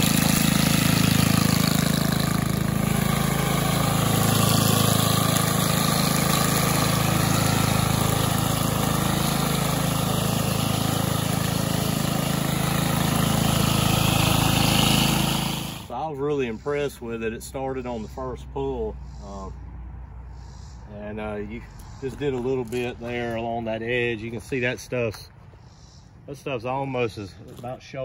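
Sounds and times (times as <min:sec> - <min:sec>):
string trimmer engine running: 0:00.0 - 0:16.0.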